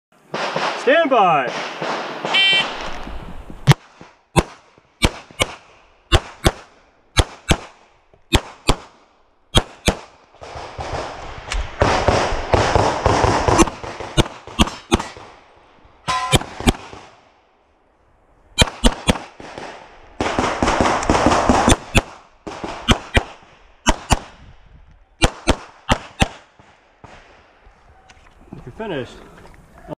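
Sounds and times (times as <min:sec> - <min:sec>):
handgun shots: 0:04.4 - 0:06.6, 0:13.1 - 0:15.2, 0:16.1 - 0:17.0, 0:18.6 - 0:19.3, 0:21.0 - 0:24.3.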